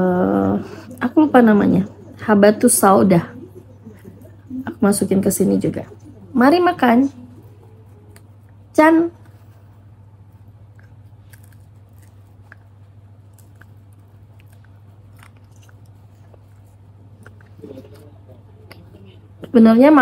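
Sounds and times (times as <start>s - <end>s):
chewing crunchy fried chicken: 9.3s - 19.0s.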